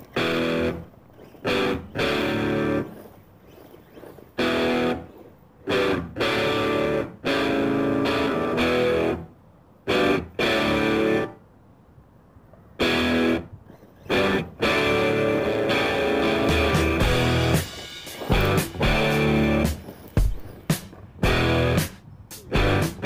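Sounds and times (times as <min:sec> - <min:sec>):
distorted electric guitar chords: 0:05.7 - 0:09.2, 0:09.9 - 0:11.4, 0:12.8 - 0:13.4, 0:14.1 - 0:20.3, 0:21.2 - 0:21.9, 0:22.5 - 0:23.0.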